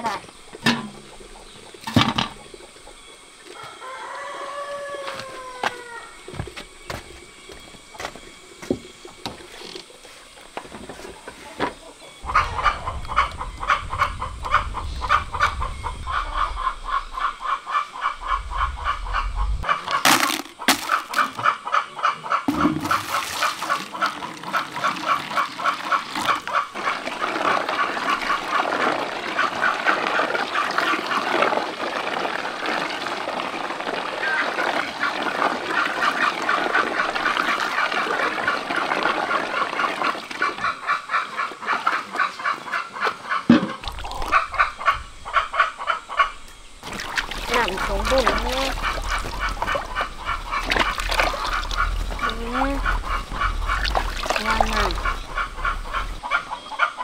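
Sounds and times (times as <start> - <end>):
ducks quacking: 11.4 - 57.0.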